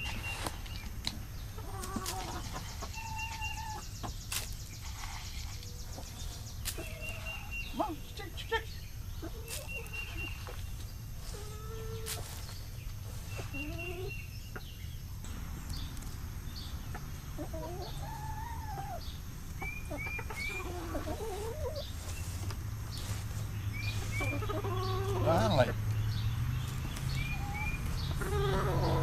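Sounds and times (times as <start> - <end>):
hens clucking: 0.0 - 29.0
low rumble: 15.1 - 20.6.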